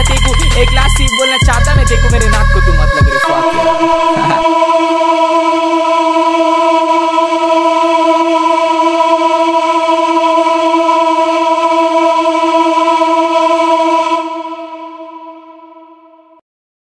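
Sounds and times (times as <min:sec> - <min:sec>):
long held musical note: 0:00.0 - 0:09.9.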